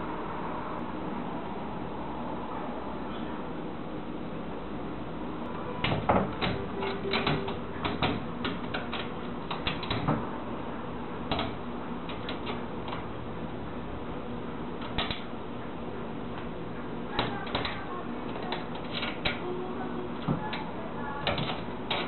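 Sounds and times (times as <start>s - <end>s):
cat claws scratching screen mesh: 5.7s - 10.3s, 11.2s - 13.2s, 14.7s - 15.3s, 17.1s - 19.5s, 20.2s - 22.0s
screen door rattling: 5.7s - 10.3s, 11.2s - 13.5s, 14.8s - 15.3s, 17.1s - 19.5s, 20.1s - 22.0s.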